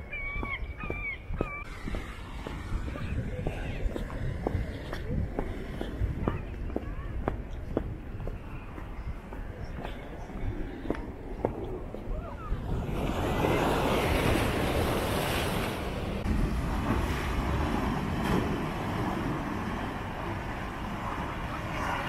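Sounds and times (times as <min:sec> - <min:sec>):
wind rumbling on microphone: 0:00.0 - 0:22.0
surf breaking over boulders: 0:12.7 - 0:22.0.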